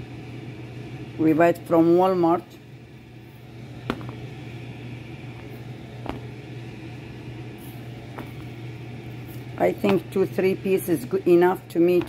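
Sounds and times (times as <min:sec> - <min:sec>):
gas burner humming: 0:00.0 - 0:12.0
light taps on burner grate: 0:03.8 - 0:04.3, 0:05.3 - 0:06.5, 0:07.6 - 0:10.2.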